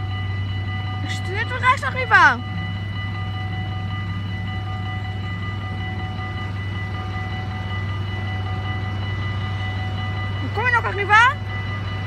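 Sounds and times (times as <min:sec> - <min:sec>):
constant low hum: 0:00.0 - 0:12.0
level-crossing warning bells: 0:00.0 - 0:12.0.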